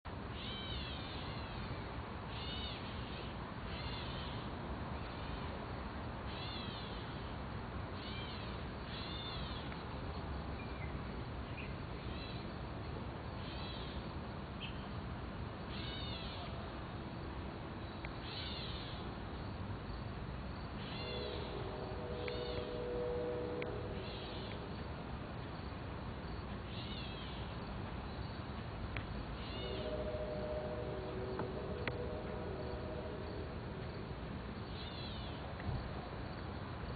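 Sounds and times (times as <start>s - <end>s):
low rumble and hiss: 0.1s - 36.9s
low hum: 21.2s - 25.4s, 29.6s - 34.7s.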